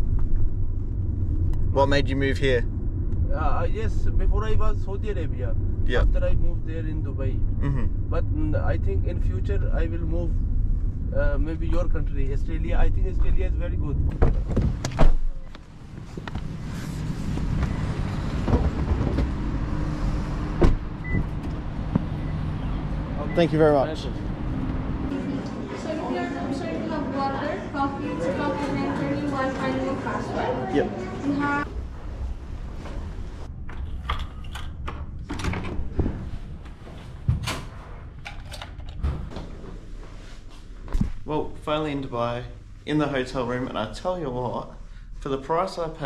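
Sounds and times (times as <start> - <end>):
door low thud: 20.6 - 22.1.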